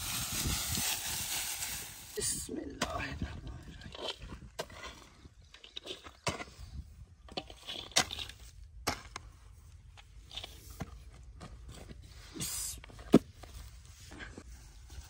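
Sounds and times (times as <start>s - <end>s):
spade scraping soil into metal pan: 7.3s - 9.1s.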